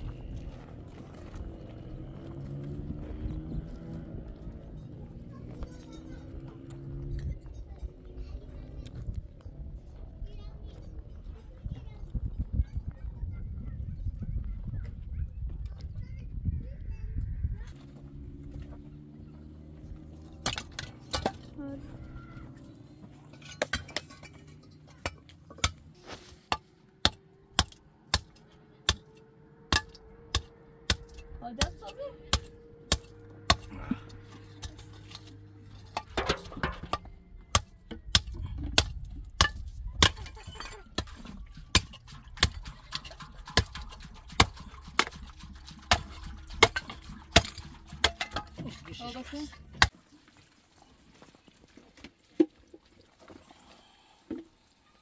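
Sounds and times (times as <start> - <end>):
hard objects clinking and knocking: 23.0 - 25.8, 32.3 - 48.9.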